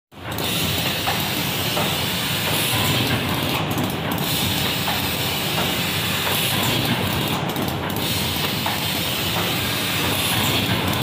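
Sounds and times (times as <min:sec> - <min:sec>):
machine clattering: 0:00.2 - 0:11.0.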